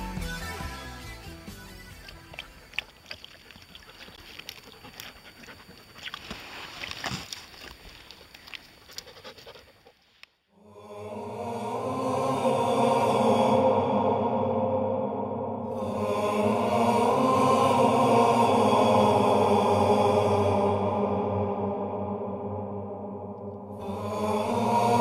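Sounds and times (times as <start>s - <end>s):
dog lapping and splashing water: 2.0s - 6.5s
music with chanting: 10.6s - 25.0s.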